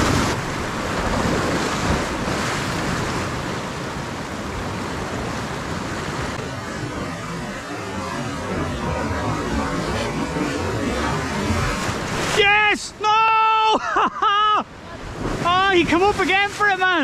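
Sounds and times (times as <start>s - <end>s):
wind buffeting microphone: 0.0s - 6.4s
waves breaking over rocks: 0.0s - 7.1s.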